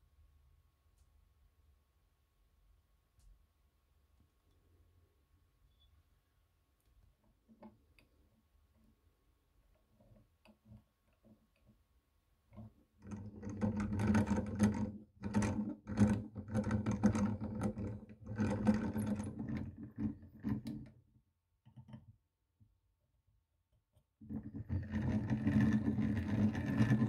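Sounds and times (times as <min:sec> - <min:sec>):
hand-cranked grinder gears whirring: 0:24.4 - 0:27.0.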